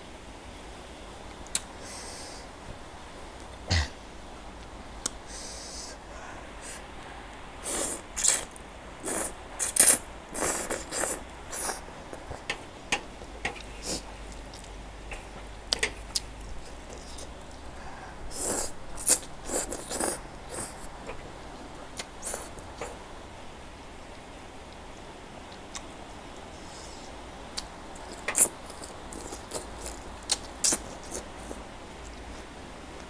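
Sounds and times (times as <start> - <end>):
slurping noodles: 7.6 - 11.8, 18.3 - 20.8
wet chewing: 27.6 - 31.6.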